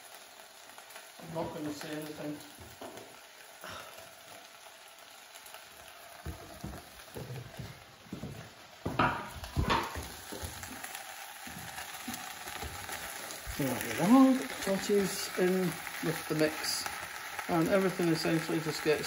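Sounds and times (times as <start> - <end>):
onions frying in a pan: 0.0 - 19.0
knocks: 8.9 - 10.5.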